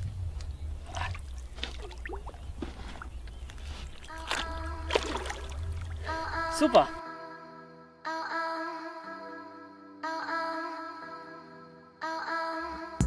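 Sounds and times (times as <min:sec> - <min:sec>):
low rumble: 0:00.0 - 0:06.6
water sloshing against boat: 0:00.5 - 0:07.0.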